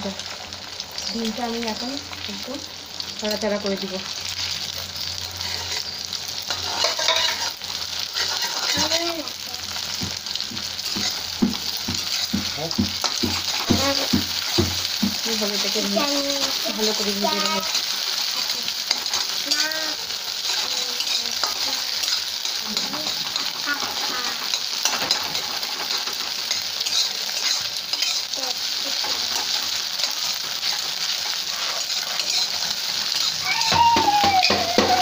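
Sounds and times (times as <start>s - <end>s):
egg sizzling in hot oil: 0.0s - 35.0s
metal spatula scraping: 5.4s - 9.2s, 10.0s - 33.5s.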